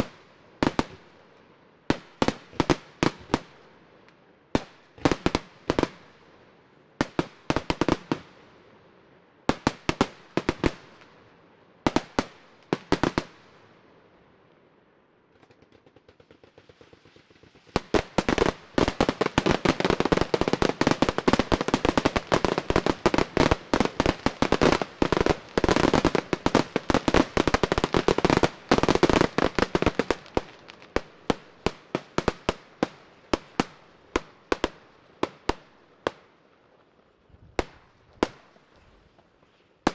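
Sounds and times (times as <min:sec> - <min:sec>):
fireworks crackling: 0:00.0 - 0:01.0, 0:07.0 - 0:08.3, 0:15.3 - 0:36.2.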